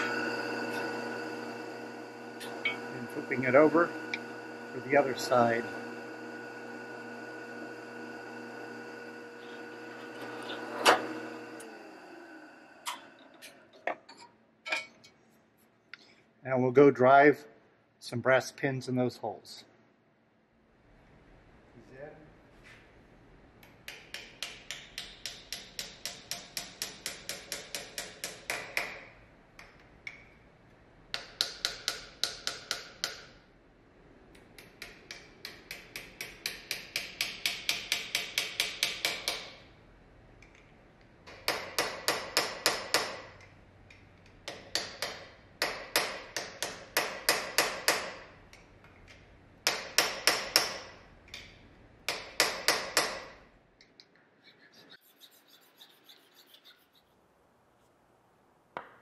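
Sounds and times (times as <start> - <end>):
small hammer tapping pins: 34.3 - 39.6.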